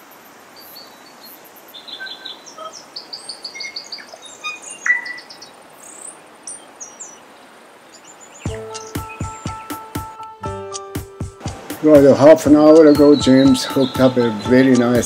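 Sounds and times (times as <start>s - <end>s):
flowing river water: 0.0s - 15.0s
birds chirping and calling: 0.6s - 10.3s, 11.5s - 15.0s
music with a beat: 8.5s - 15.0s.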